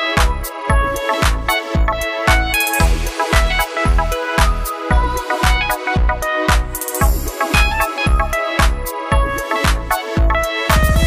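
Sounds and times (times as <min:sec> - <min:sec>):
electronic beat music: 0:00.0 - 0:11.0
bass drum hits: 0:10.7 - 0:11.0.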